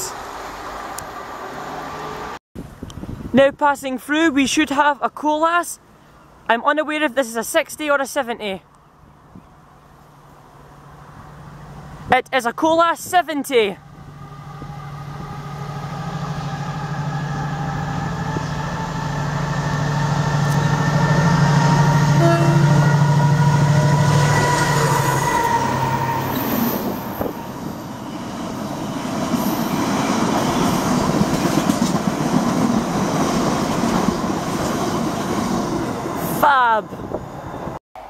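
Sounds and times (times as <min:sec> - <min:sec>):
diesel locomotive engine passing: 0:00.0 - 0:02.4, 0:09.0 - 0:12.1, 0:13.7 - 0:37.8
train wheels rumbling on rails: 0:13.9 - 0:37.8.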